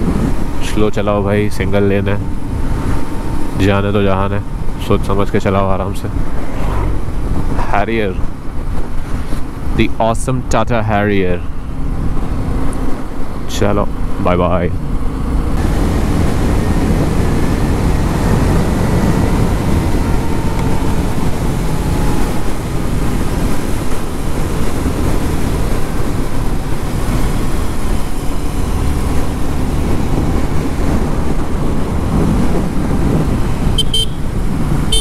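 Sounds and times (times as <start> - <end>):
wind noise on microphone: 0.0 - 10.4, 11.4 - 35.0
motorcycle engine running: 14.8 - 35.0
horn toot: 33.7 - 35.0.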